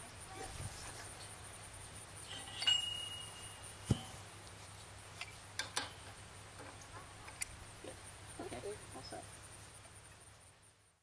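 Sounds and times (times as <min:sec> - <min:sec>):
pipe wrench clinking on metal pipe: 0:02.3 - 0:04.1.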